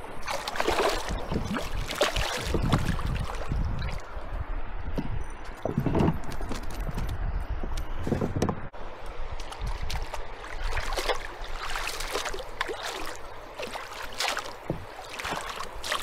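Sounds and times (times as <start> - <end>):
water splashing and gurgling: 0.0 - 4.2, 9.4 - 16.0.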